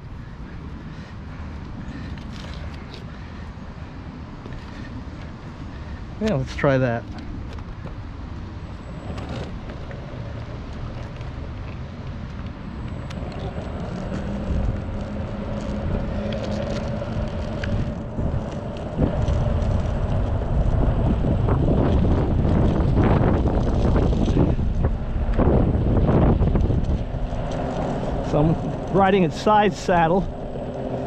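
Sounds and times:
wheels rolling over asphalt: 0.0 - 31.0
electric skateboard motor humming: 7.3 - 31.0
wind noise on microphone: 8.8 - 31.0.

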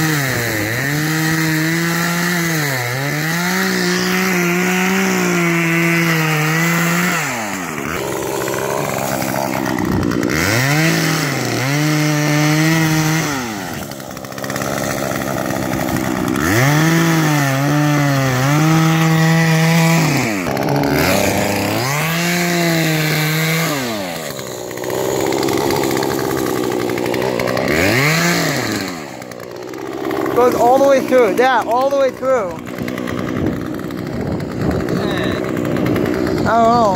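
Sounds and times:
chainsaw cutting ice: 0.0 - 36.9.

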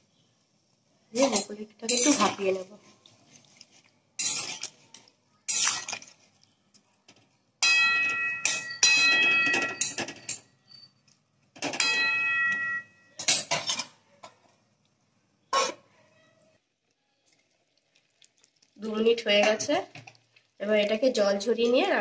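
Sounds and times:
metal spatula scraping a pan: 1.2 - 3.0, 3.6 - 6.3, 8.0 - 10.5, 11.7 - 14.0, 15.5 - 15.9
ringing metallic clatter: 7.6 - 10.5.

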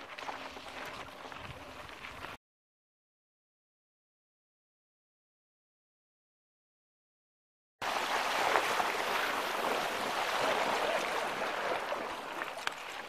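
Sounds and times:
water rushing and splashing: 7.8 - 13.0.

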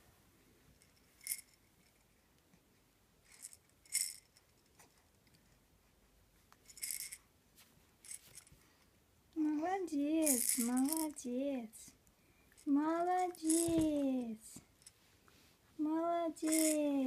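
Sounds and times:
plastic baby rattle shaking: 0.8 - 1.9, 3.3 - 4.6, 6.6 - 7.2, 8.0 - 8.5, 10.1 - 11.3, 12.6 - 14.0, 16.4 - 17.0.

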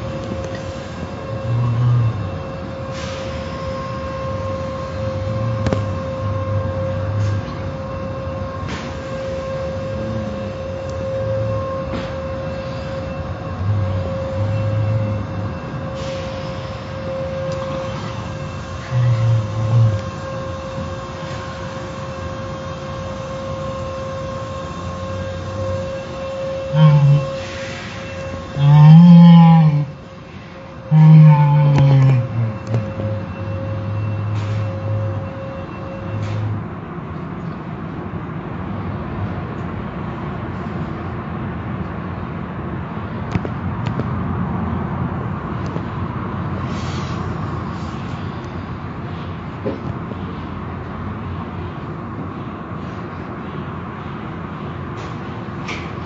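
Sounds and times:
car wash machinery rushing: 0.0 - 28.6
constant whine: 0.0 - 56.0.

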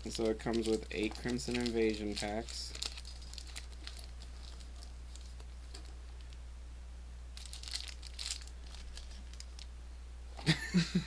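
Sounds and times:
plastic packaging crinkling and tearing: 0.0 - 6.4, 7.4 - 9.7
steady low hum: 0.0 - 11.0.

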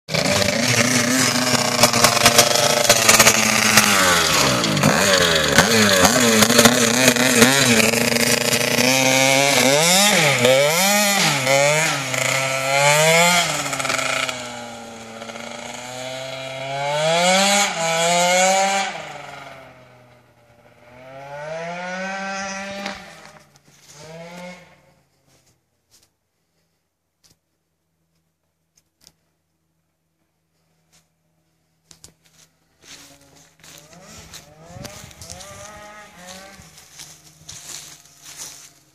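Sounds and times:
scooter engine revving: 0.1 - 25.0, 32.8 - 38.8.

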